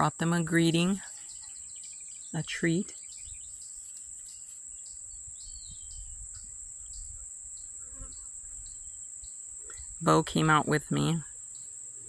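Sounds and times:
insect chorus drone: 0.0s - 12.0s
bird chirp: 0.6s - 10.0s.

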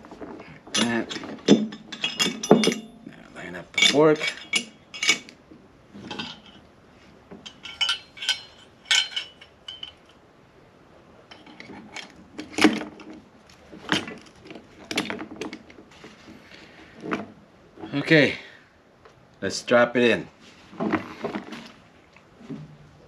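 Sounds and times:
metal clinks and taps: 0.8s - 3.1s, 3.7s - 5.3s, 6.0s - 6.6s, 7.4s - 10.2s.

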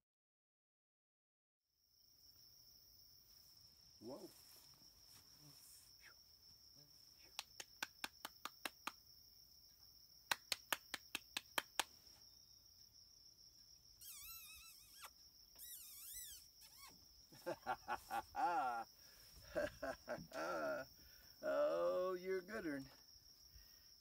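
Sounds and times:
insect drone: 1.7s - 24.0s
warbling whistle-like calls: 14.0s - 16.9s.

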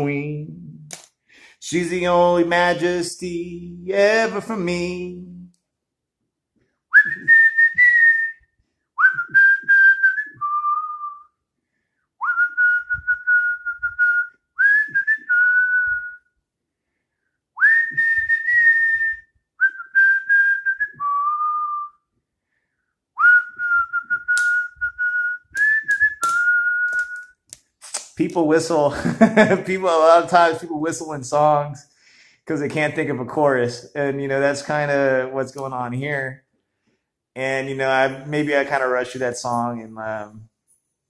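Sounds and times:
man whistling a slow tune: 6.9s - 11.4s, 12.2s - 16.4s, 17.6s - 22.1s, 23.2s - 27.3s.

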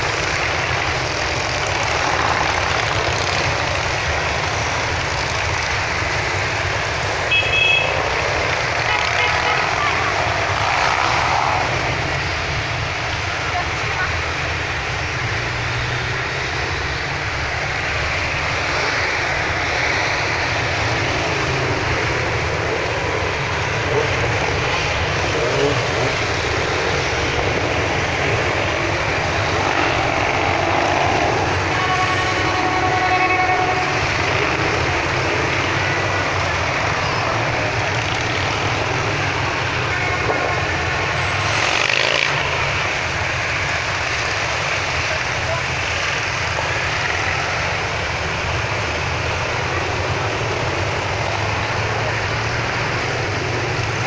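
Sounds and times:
motorcycle engines passing: 0.0s - 54.0s
horn sounding: 7.2s - 10.4s, 31.1s - 35.3s, 39.8s - 41.2s.

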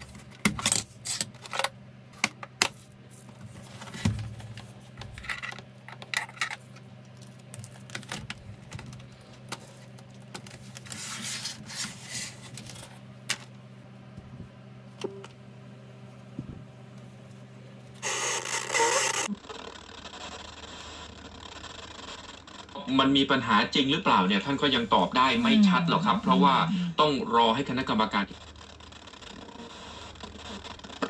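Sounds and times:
boombox being handled: 0.0s - 13.5s
steady low hum: 0.0s - 31.0s
radio static: 21.2s - 28.5s.

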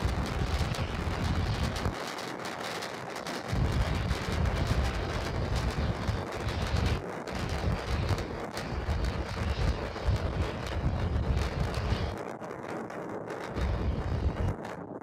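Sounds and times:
distant rocket engines rumbling: 0.0s - 15.0s.

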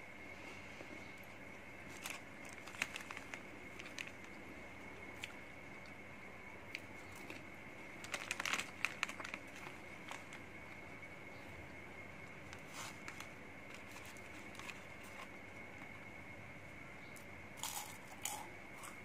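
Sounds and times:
foil wrappers crinkling: 1.8s - 4.4s, 7.1s - 10.5s, 12.4s - 15.4s.

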